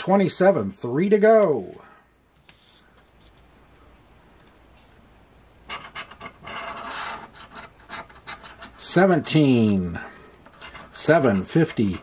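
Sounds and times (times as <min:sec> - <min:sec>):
coin scraping a scratch card: 0:05.7 - 0:12.0.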